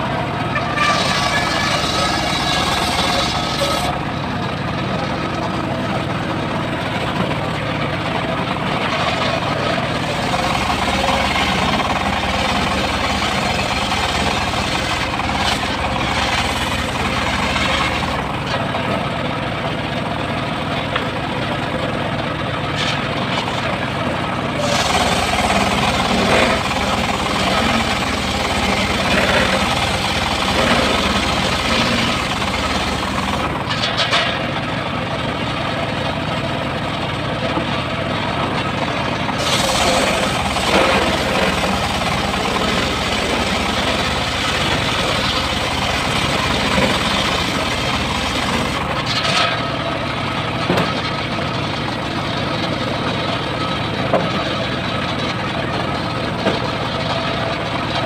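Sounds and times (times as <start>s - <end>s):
sawmill engine drone: 0.0s - 58.0s
saw blade ripping through log: 0.6s - 4.0s, 13.1s - 18.2s, 24.6s - 34.4s, 39.4s - 49.7s.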